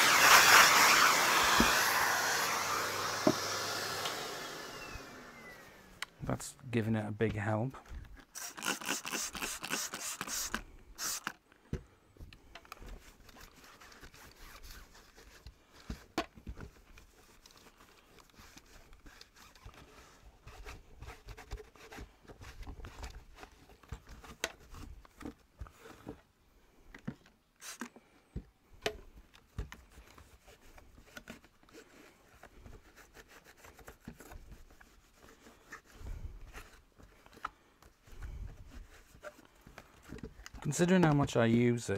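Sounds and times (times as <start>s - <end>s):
plastic scraping and rubbing: 12.2s - 28.0s, 29.2s - 41.9s.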